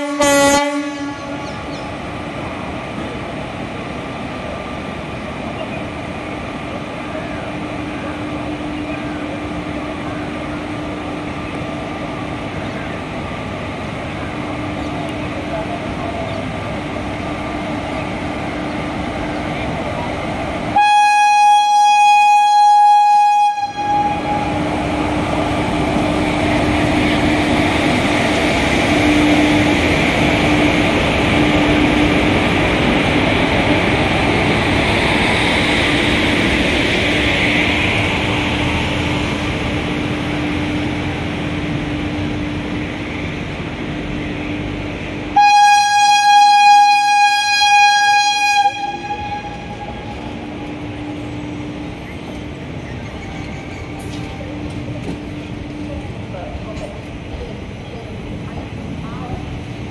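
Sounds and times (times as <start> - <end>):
train horn blowing: 0.0 - 1.7, 20.7 - 24.8, 45.3 - 50.4
train coaches rolling past: 0.0 - 59.9.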